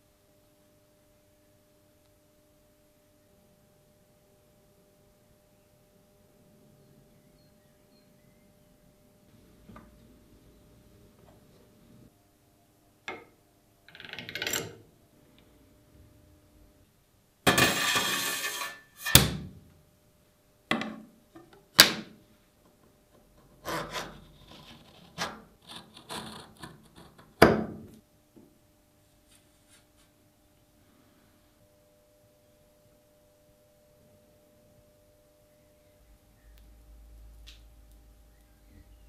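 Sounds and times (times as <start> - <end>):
metal sheet scraping slide: 17.5 - 19.2.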